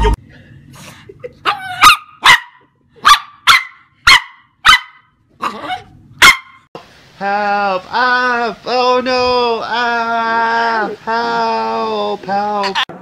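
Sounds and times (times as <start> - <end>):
dog barking: 1.5 - 6.6.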